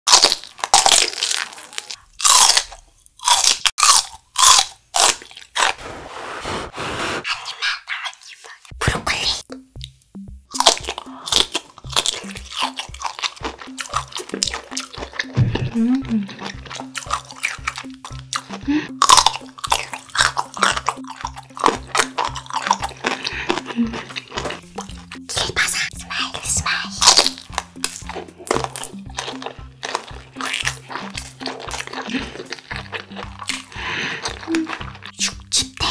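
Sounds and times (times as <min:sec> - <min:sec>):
crisp crunching bites: 0:00.1 - 0:05.8, 0:10.5 - 0:15.4, 0:16.4 - 0:25.1, 0:27.0 - 0:35.5
background music with bass line: 0:08.8 - 0:35.9
soft chewing: 0:10.6 - 0:25.3, 0:26.0 - 0:35.9.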